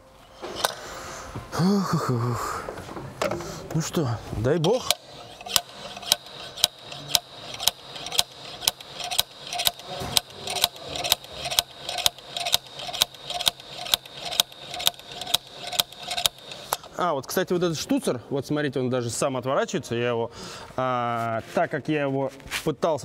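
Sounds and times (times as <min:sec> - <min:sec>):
ratchet wrench clicking: 0:04.7 - 0:16.9.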